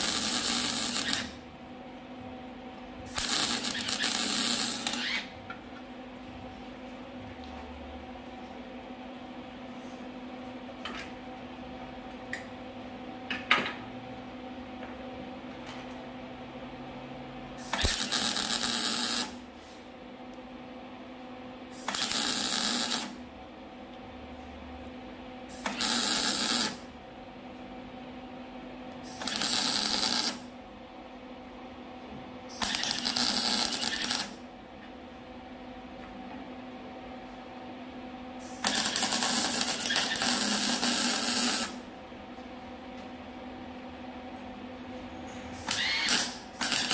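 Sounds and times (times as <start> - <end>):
mig welder bursts: 0.0 - 1.4, 3.1 - 5.3, 17.6 - 19.4, 21.7 - 23.2, 25.5 - 26.8, 29.0 - 30.5, 32.5 - 34.4, 38.4 - 41.8, 45.6 - 46.9
steady electrical hum: 0.0 - 46.9.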